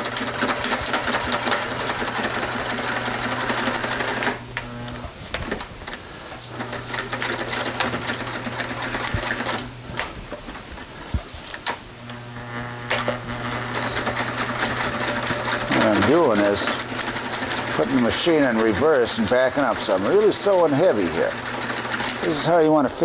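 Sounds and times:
sewing machine stitching: 0:00.0 - 0:04.4, 0:06.5 - 0:10.1, 0:12.9 - 0:23.0
sewing machine clicks: 0:00.0 - 0:04.7, 0:12.9 - 0:22.5.

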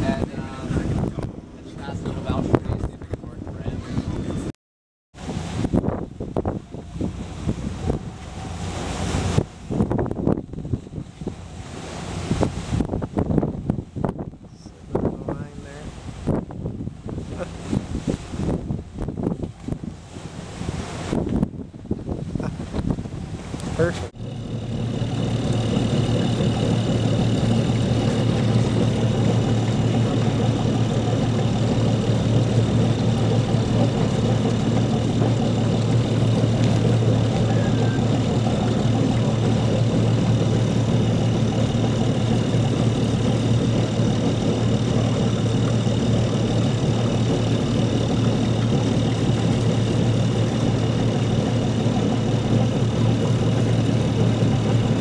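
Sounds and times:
diesel engine droning: 0:05.2 - 0:12.8, 0:23.1 - 0:55.0.

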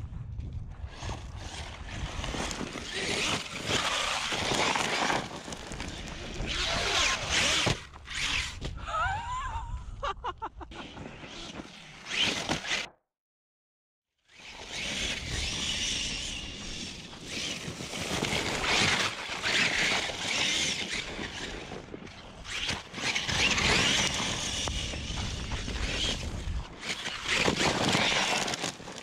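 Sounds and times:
rc truck motor whir: 0:00.8 - 0:08.8, 0:10.8 - 0:13.0, 0:14.2 - 0:29.0
tyres tearing through dirt: 0:00.8 - 0:08.8, 0:14.7 - 0:29.0.

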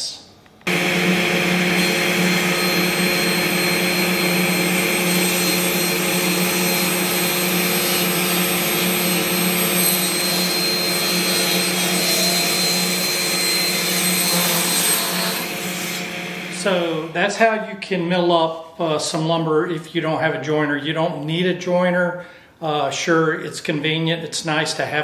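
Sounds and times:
table saw whirring: 0:00.6 - 0:17.2.

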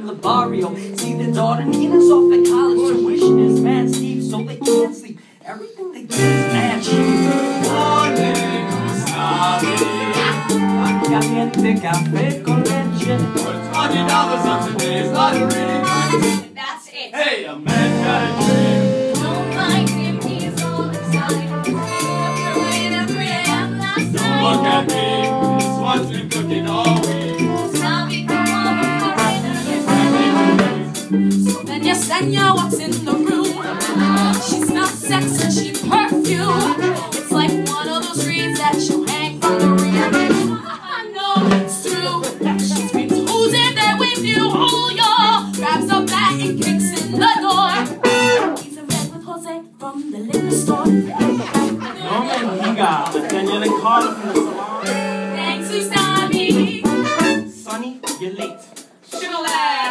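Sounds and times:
band playing latin-style music: 0:00.0 - 0:05.0, 0:06.1 - 0:16.5, 0:17.7 - 0:49.2, 0:50.3 - 0:59.9
chorus of young voices singing: 0:06.4 - 0:11.9, 0:12.6 - 0:16.2, 0:17.1 - 0:25.0, 0:26.0 - 0:30.6, 0:32.0 - 0:44.0, 0:50.4 - 0:57.2.

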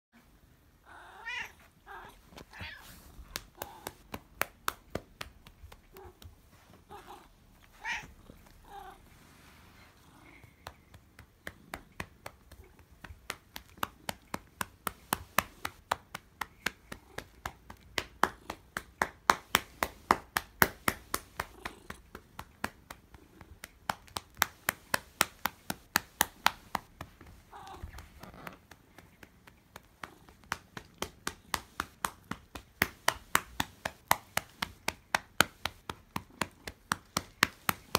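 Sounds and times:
cat meowing: 0:00.9 - 0:03.0, 0:06.9 - 0:09.0
hand patting cat: 0:02.4 - 0:08.6, 0:10.3 - 0:37.9.

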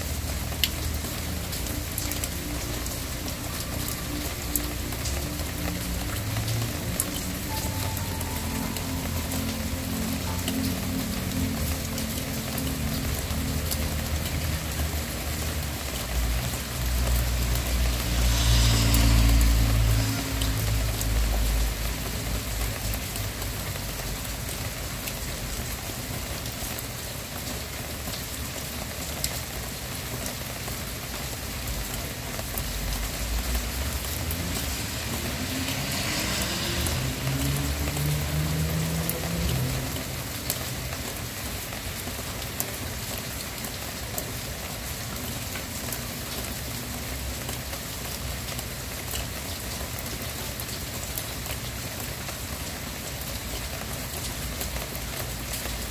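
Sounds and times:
steady rain falling: 0:00.0 - 0:55.9
low rumble with rising hum: 0:16.9 - 0:22.4.

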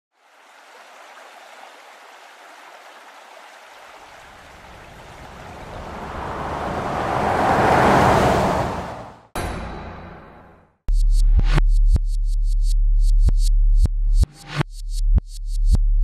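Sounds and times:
road and wind noise: 0:04.2 - 0:10.6.

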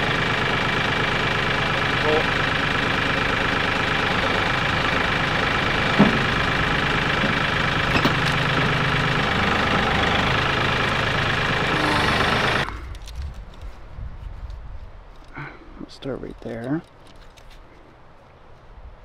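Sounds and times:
tractor engine running: 0:00.0 - 0:13.4.

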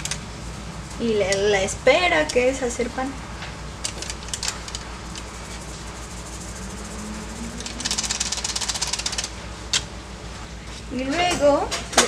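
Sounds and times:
steady low hum: 0:00.0 - 0:12.0
yeast granules rattling into glass bowl: 0:03.9 - 0:09.4.

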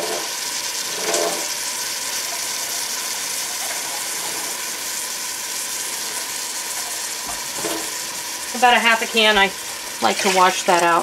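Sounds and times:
tap water filling a can: 0:00.0 - 0:08.2.

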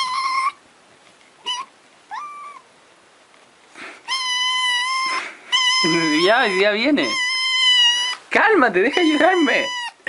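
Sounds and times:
kitten meowing: 0:00.0 - 0:00.6, 0:01.4 - 0:02.7, 0:04.0 - 0:10.0.

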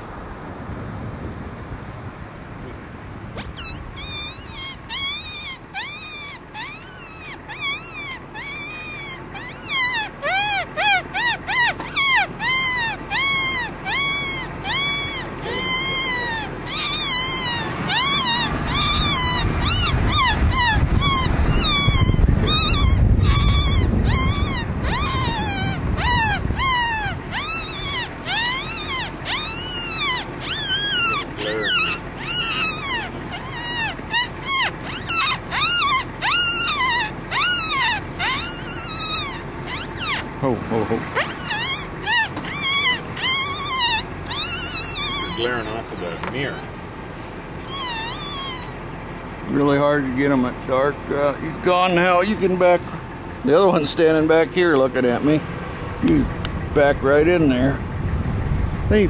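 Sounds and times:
wolves yipping and howling: 0:03.5 - 0:40.3, 0:41.2 - 0:46.8, 0:47.6 - 0:48.8
low rumble: 0:55.4 - 0:59.0.

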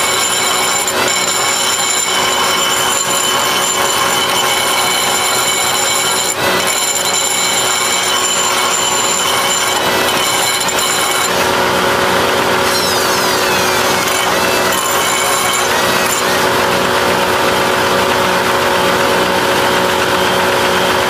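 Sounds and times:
die grinder grinding metal: 0:00.0 - 0:21.0.

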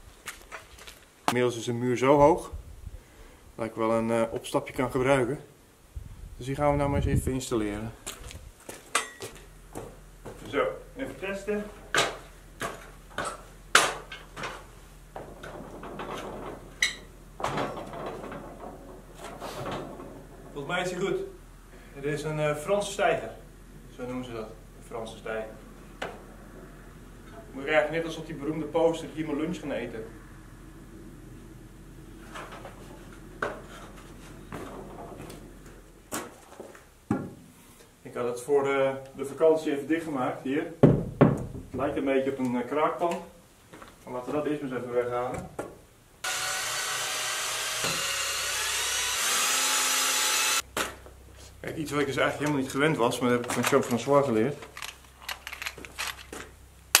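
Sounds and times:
boots knocking on steel scaffold: 0:40.8 - 0:41.6.

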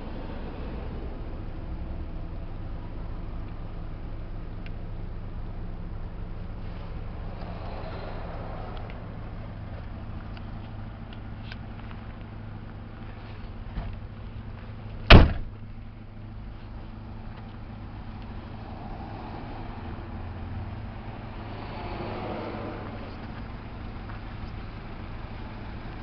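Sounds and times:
van liftgate slamming: 0:15.0 - 0:15.6.

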